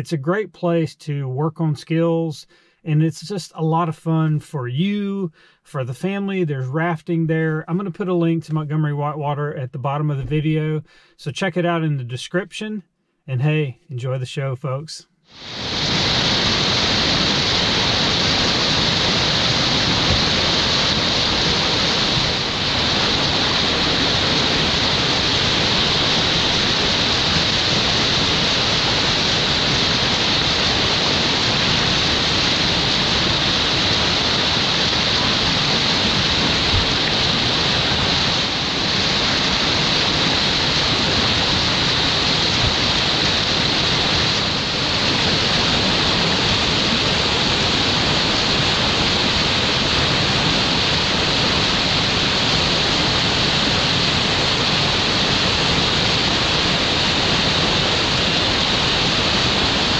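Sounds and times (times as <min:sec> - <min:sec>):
whitewater rushing: 0:15.3 - 0:59.9.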